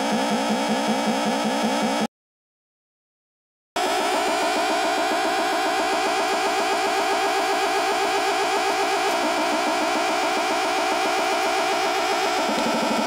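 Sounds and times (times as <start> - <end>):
buzzy electronic synth tone: 3.8 - 13.0.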